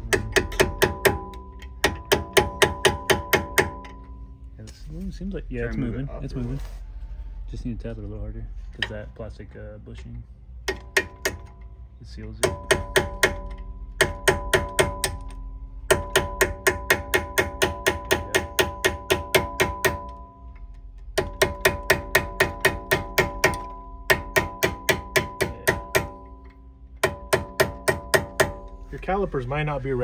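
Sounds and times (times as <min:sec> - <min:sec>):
hammer tapping metal pin: 0:00.0 - 0:04.2, 0:10.6 - 0:11.7, 0:12.4 - 0:28.8.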